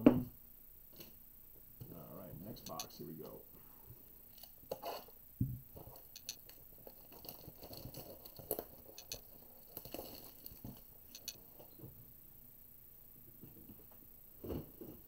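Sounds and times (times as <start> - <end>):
fingers clicking and scraping: 5.8 - 11.5
plastic wrap crinkling: 5.8 - 11.7.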